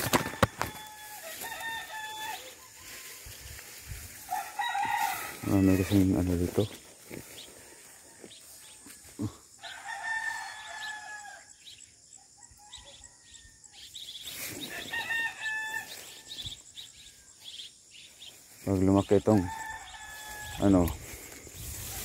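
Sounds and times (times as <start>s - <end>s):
rooster crowing: 0.0s - 3.1s, 4.2s - 6.3s, 9.6s - 11.5s, 14.7s - 16.3s, 19.3s - 20.7s.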